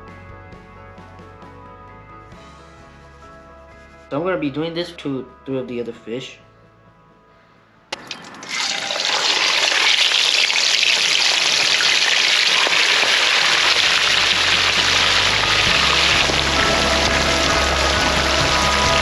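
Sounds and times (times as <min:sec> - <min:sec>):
fish deep-frying in oil: 0:08.2 - 0:17.0.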